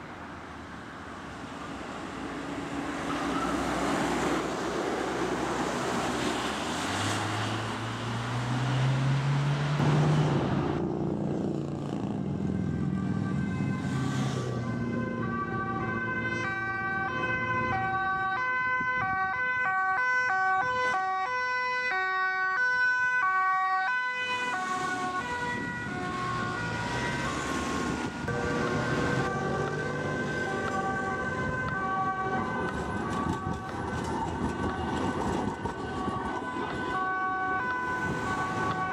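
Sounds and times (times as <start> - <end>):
vehicle engine passing: 2.0 - 18.3, 24.3 - 37.0.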